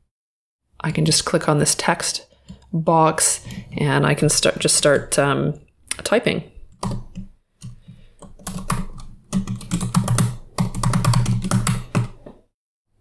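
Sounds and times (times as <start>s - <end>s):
typing on keyboard: 6.7s - 12.2s.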